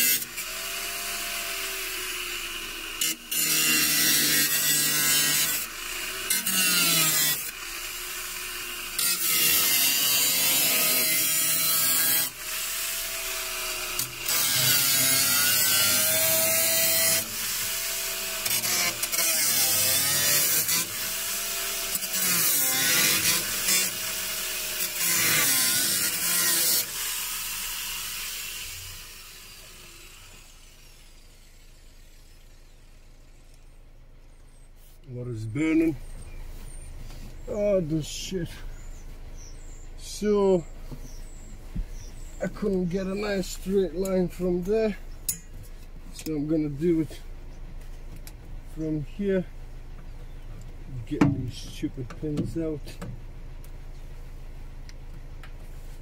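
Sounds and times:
angle grinder cutting steel: 0:00.0 - 0:33.6.

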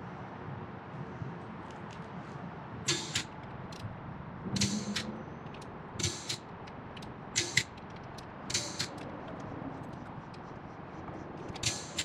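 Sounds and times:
torque wrench ratchet clicking: 0:04.6 - 0:09.5, 0:11.5 - 0:12.0.

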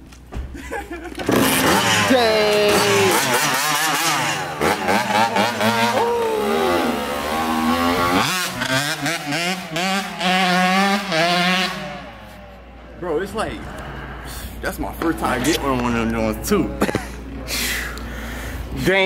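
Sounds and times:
dirt bike engine revving: 0:01.2 - 0:14.3.

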